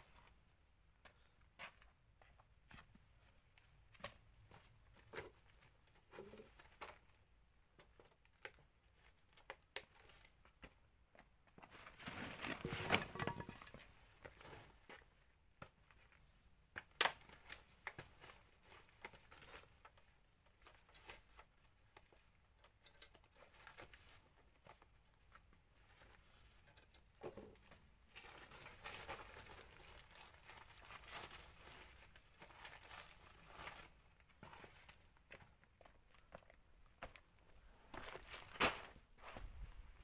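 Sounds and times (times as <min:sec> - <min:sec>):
leaves and twigs rustling: 0:11.6 - 0:15.2, 0:27.6 - 0:35.6, 0:37.0 - 0:40.0.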